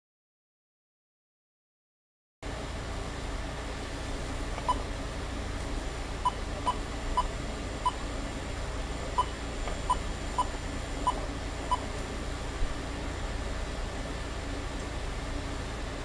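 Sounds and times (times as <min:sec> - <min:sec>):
steady low hum: 0:02.4 - 0:16.0
keypad beeps: 0:04.6 - 0:04.8, 0:06.2 - 0:08.0, 0:09.2 - 0:11.9.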